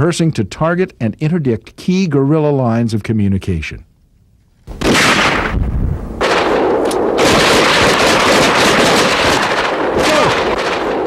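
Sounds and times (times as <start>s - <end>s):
rapid rifle gunfire: 4.7s - 5.6s, 6.2s - 11.0s.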